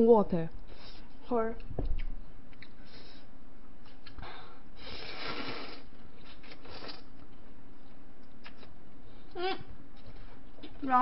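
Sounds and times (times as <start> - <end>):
faint steady hum: 0.0 - 11.0
noodles being slurped: 4.8 - 7.1.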